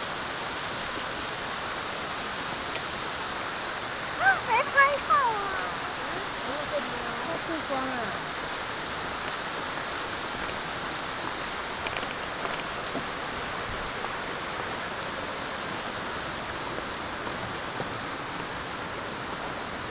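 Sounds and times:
waterfall pouring into pool: 0.0s - 19.9s
faint clicks: 11.8s - 13.1s.

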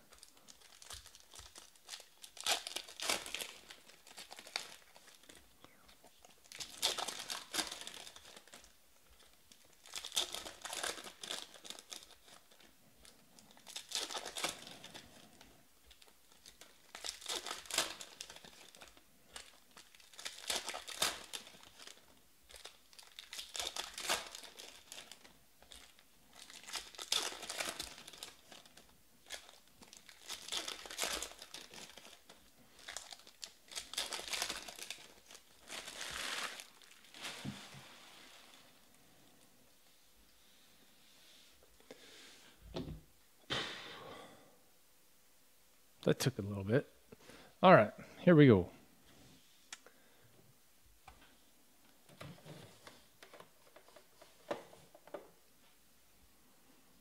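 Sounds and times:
card pack wrappers crinkling and tearing: 0.0s - 37.8s, 52.2s - 55.2s.

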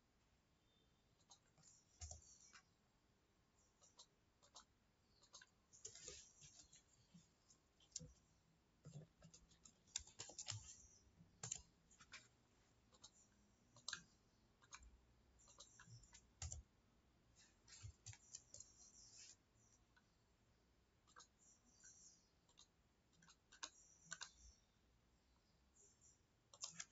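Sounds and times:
computer mouse clicks: 1.2s - 2.7s, 3.8s - 6.9s, 8.9s - 12.3s, 12.9s - 16.7s, 21.1s - 24.6s, 26.5s - 26.9s.

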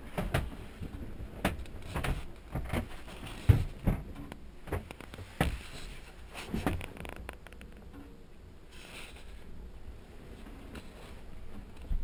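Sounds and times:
knocks and clunks in cabin: 0.0s - 5.6s
muffled wind: 0.0s - 12.0s.

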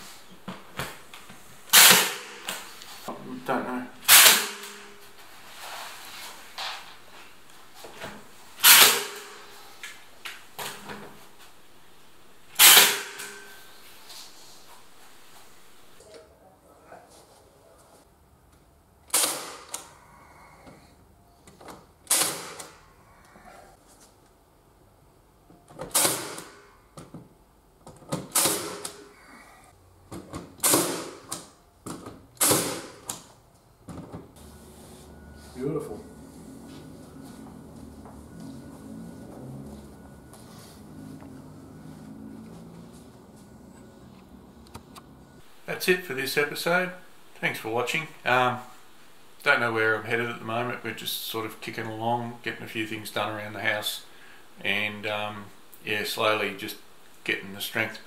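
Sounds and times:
nail gun firing into timber: 1.7s - 2.3s, 4.1s - 4.8s, 8.6s - 9.3s, 12.6s - 13.4s, 19.1s - 19.8s, 22.1s - 22.7s, 25.9s - 26.6s, 28.2s - 29.0s, 30.6s - 31.4s, 32.4s - 33.1s.

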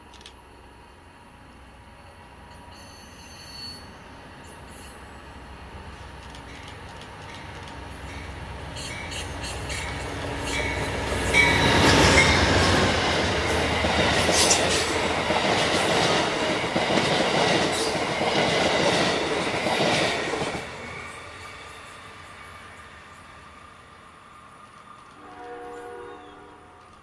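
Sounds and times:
train wheel squeal: 2.5s - 5.3s, 8.0s - 12.8s, 25.1s - 26.9s
train wheels clicking over rails: 5.9s - 22.8s.

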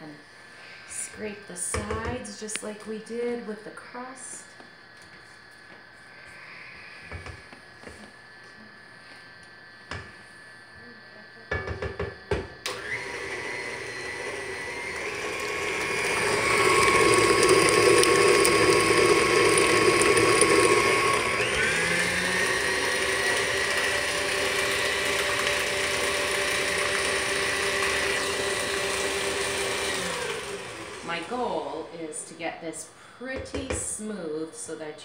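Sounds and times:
stand mixer running: 11.5s - 31.9s.

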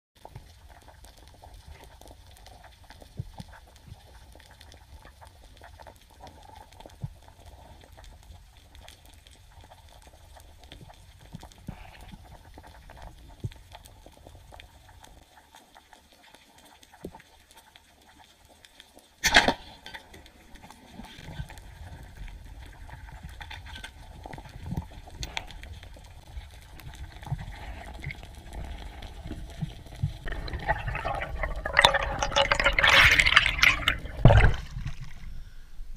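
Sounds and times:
underwater rumbling noise: 20.5s - 35.9s.

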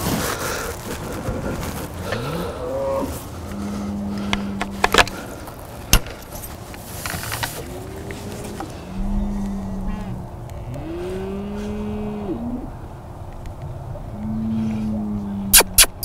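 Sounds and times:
cattle bellowing: 7.6s - 12.9s, 13.8s - 15.6s
sharp clicks: 15.6s - 16.0s.

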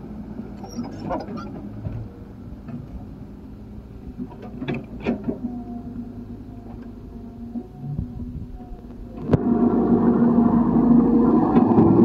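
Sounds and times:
excavator diesel engine: 0.0s - 12.0s
steady higher tone: 7.1s - 12.0s.

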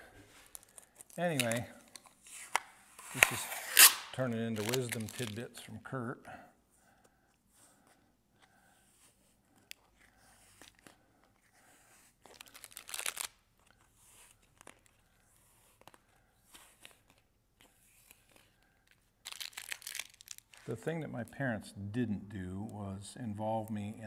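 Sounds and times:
clicks of objects being handled: 0.5s - 3.4s.

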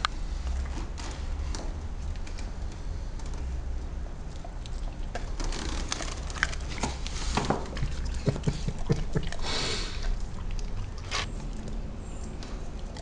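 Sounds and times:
dog chewing: 4.3s - 13.0s.

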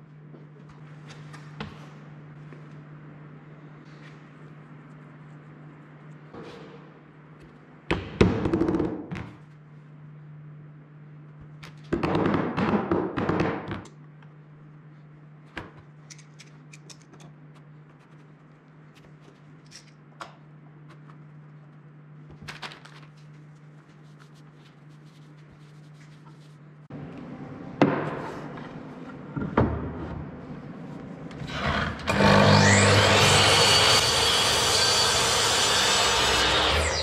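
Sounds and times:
steady low hum: 0.0s - 22.4s, 23.0s - 37.0s.

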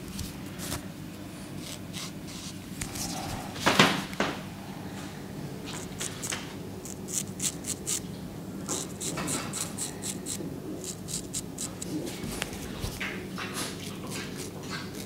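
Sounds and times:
straight razor scraping stubble: 1.6s - 3.0s, 5.8s - 8.0s, 8.7s - 11.9s.

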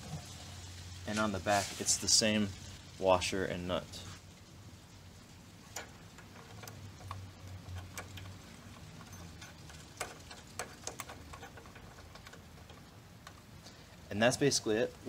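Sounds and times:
small metal clicks: 5.7s - 13.8s.

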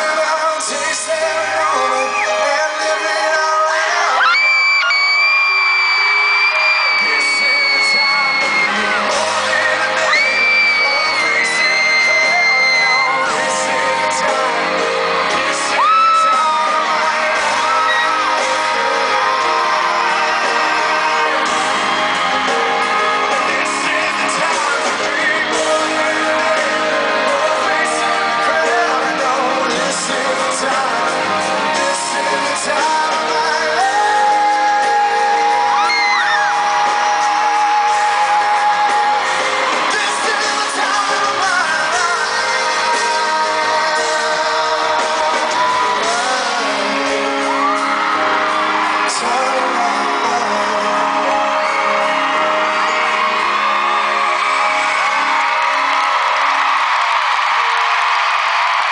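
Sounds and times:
crowd screaming and whooping: 0.0s - 58.9s
live rock ballad: 0.0s - 58.9s
person singing: 0.0s - 58.9s.

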